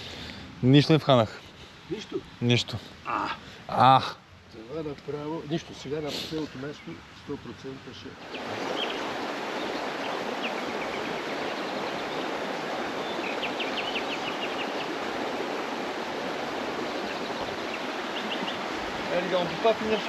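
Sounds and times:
river water rushing: 0:01.6 - 0:20.0.

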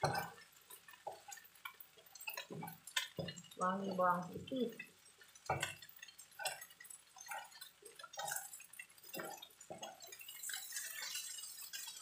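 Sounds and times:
shrimp sizzling in hot oil: 0:00.0 - 0:12.0
spatula scraping a pan: 0:05.2 - 0:12.0.

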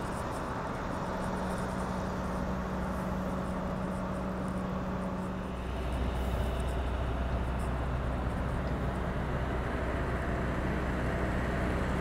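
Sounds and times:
vehicle engines humming: 0:00.0 - 0:12.0.

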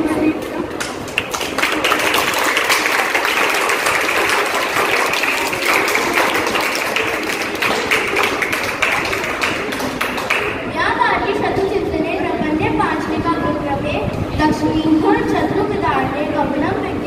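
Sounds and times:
audience applause: 0:00.8 - 0:10.7.

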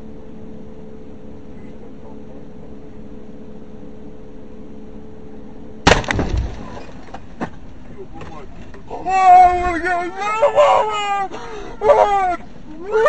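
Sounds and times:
object crashing into windshield: 0:05.9 - 0:07.5.

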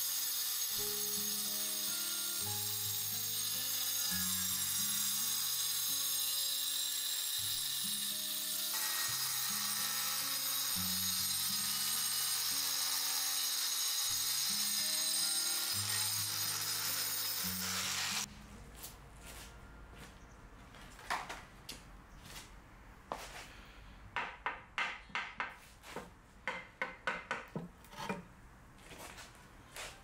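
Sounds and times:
angle grinder cutting ceramic: 0:00.0 - 0:18.3
background music with plucked melody: 0:00.8 - 0:05.5.

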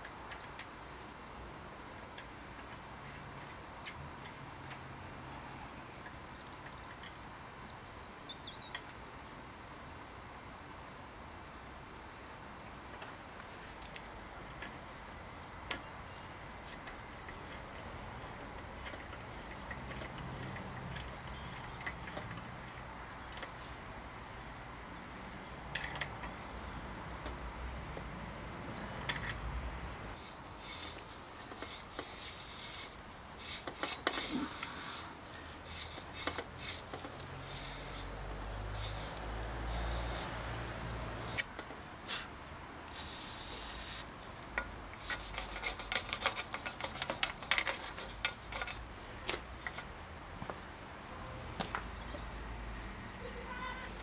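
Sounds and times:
hand tools scraping metal: 0:16.6 - 0:22.9, 0:30.2 - 0:41.5, 0:45.0 - 0:48.8.

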